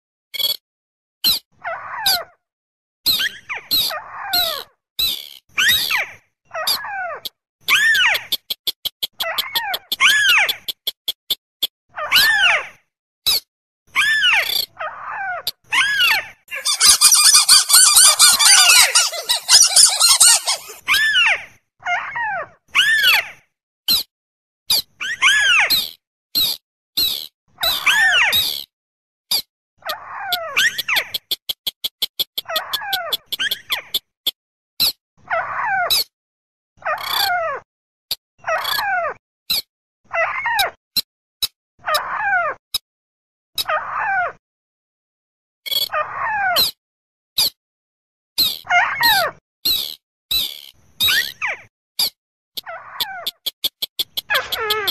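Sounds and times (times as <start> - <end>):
rapid harsh chattering calls: 16.5 - 21.0, 52.6 - 54.9.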